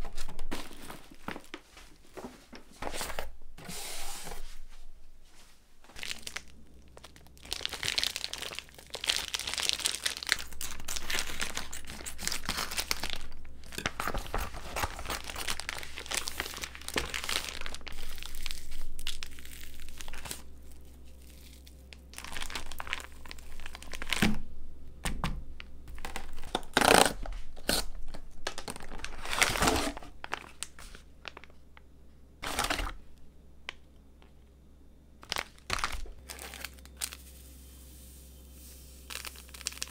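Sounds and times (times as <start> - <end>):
plastic packaging crinkling: 0.0 - 1.8, 5.9 - 24.4, 25.9 - 31.6, 32.4 - 34.3, 35.2 - 37.7, 39.0 - 39.9.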